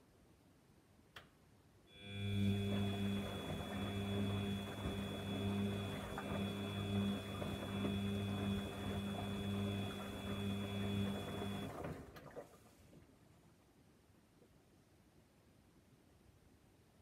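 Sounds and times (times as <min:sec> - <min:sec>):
washing machine drum motor humming: 0:02.0 - 0:12.4.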